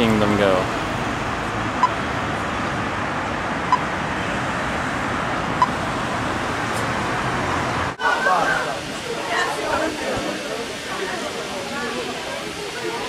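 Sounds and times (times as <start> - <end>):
street traffic noise: 0.0 - 13.0
pedestrian crossing signal beep: 1.8 - 2.0, 3.6 - 3.9, 5.6 - 5.8.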